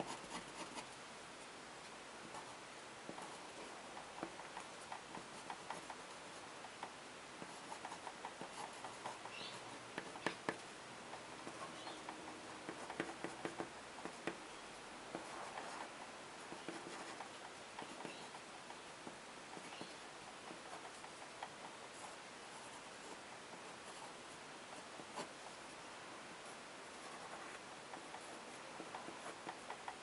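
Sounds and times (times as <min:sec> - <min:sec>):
pen scratching on paper: 0:00.0 - 0:00.8, 0:06.7 - 0:10.6, 0:15.1 - 0:18.4.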